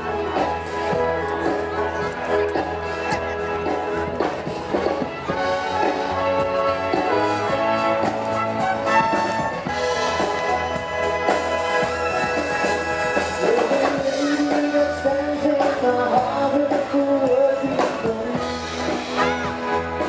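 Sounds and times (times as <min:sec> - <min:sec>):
band playing live: 0:00.0 - 0:20.0
person singing: 0:13.2 - 0:19.8.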